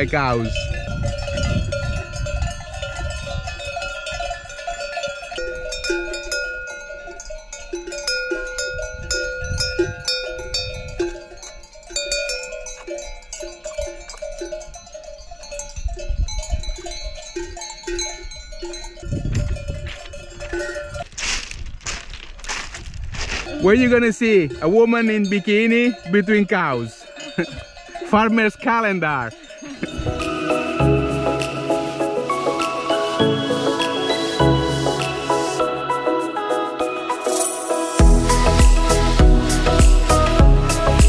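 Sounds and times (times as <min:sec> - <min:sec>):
cattle bells clanking: 0:00.0 - 0:21.4, 0:23.2 - 0:34.5.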